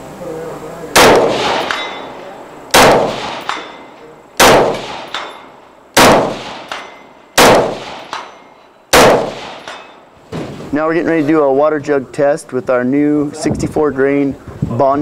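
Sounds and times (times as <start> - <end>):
rifle shots: 1.0 - 2.1, 2.7 - 3.8, 4.4 - 5.4, 6.0 - 9.9.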